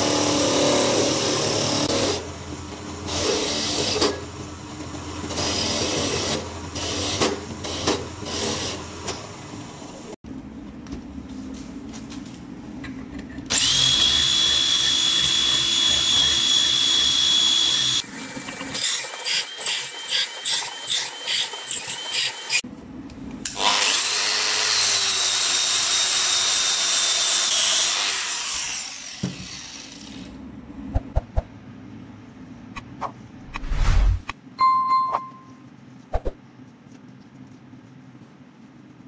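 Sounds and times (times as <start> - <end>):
electric drill whining: 13.5 - 18.0.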